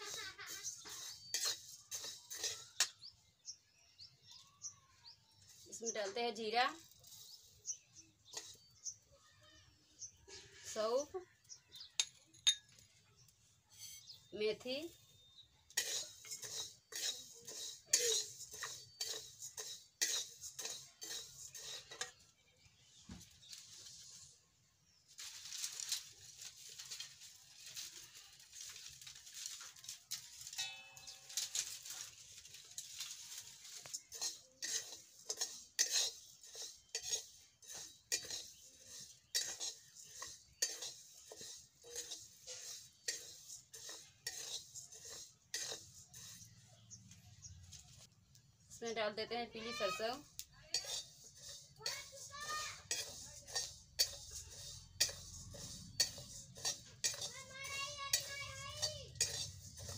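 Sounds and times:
spatula scraping spices in metal pan: 0:00.0 - 0:59.9.

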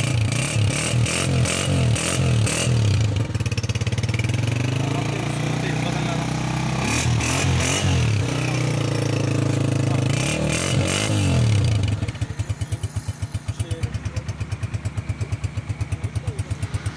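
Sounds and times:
motorcycle engine revving and idling: 0:00.0 - 0:16.9.

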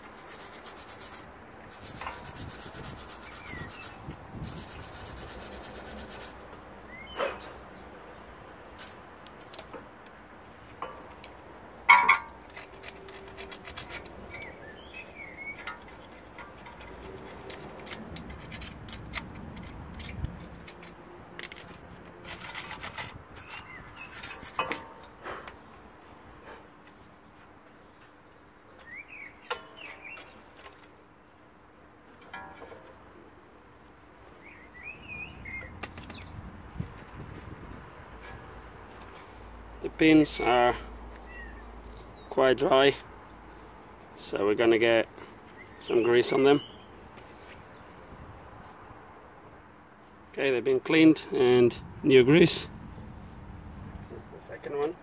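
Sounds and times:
brush scrubbing metal: 0:00.0 - 0:06.4, 0:12.0 - 0:21.0, 0:21.6 - 0:25.0.

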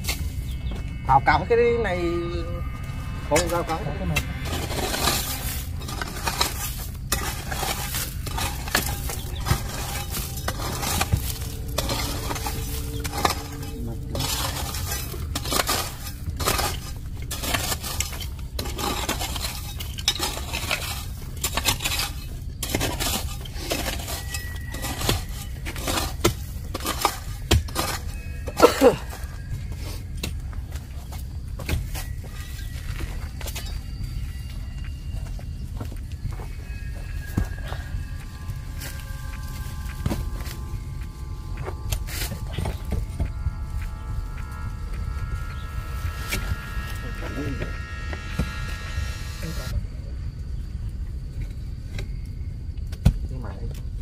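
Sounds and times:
steady low rumble: 0:00.0 - 0:54.0
metal tool scraping stones: 0:03.3 - 0:29.3.

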